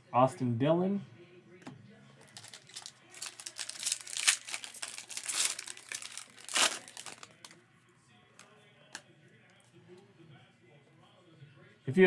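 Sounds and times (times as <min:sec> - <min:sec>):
foil wrapper tearing and crinkling: 0:02.3 - 0:07.5.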